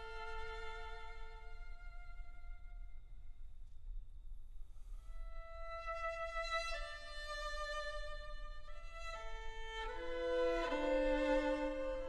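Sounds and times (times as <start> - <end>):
slow music of long held notes: 4.7 - 12.0.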